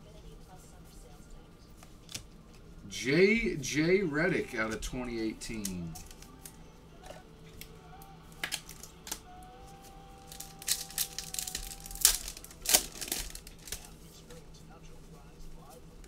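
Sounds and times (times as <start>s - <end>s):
foil wrapper crinkling and tearing: 10.2s - 14.3s.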